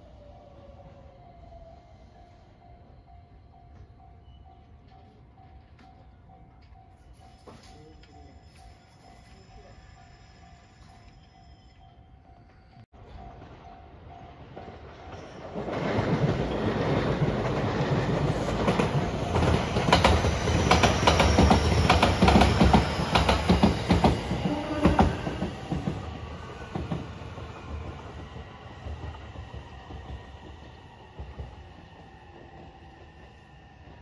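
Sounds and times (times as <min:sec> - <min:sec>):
electric train passing: 0:00.0 - 0:34.0
wheels clacking over rail joints: 0:13.0 - 0:32.6.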